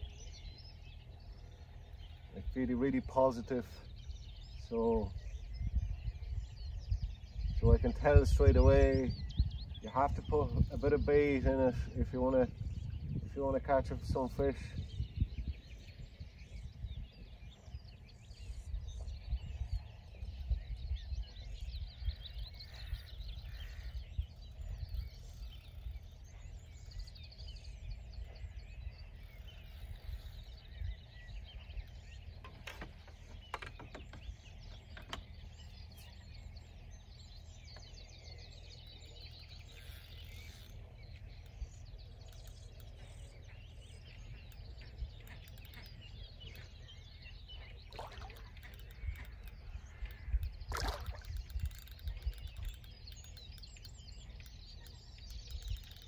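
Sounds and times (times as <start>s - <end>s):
small birds chirping: 0.0s - 56.0s
wind rumble on microphone: 0.0s - 56.0s.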